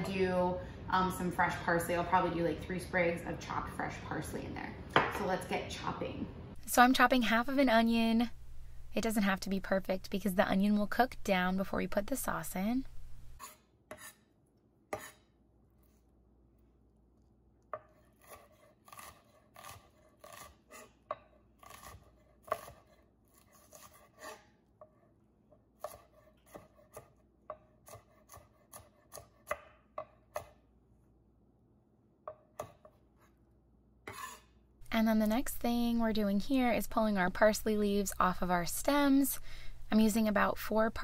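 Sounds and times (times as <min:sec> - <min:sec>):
knife dicing onion on wooden board: 0:14.9 - 0:15.3, 0:17.8 - 0:25.0, 0:25.8 - 0:30.6.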